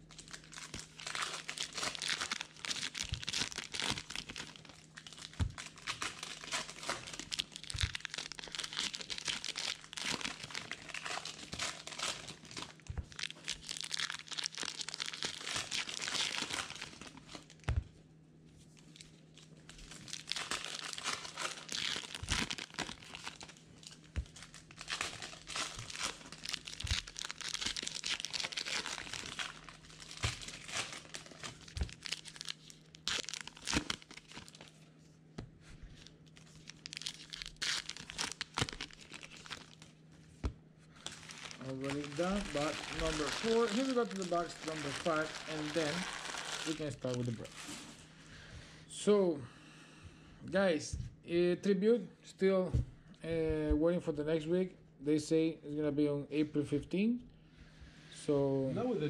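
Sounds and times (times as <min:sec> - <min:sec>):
card pack wrappers tearing and crinkling: 0:00.0 - 0:17.6, 0:19.8 - 0:34.7, 0:36.0 - 0:39.9, 0:41.0 - 0:48.0
faint low hum: 0:00.0 - 0:59.0.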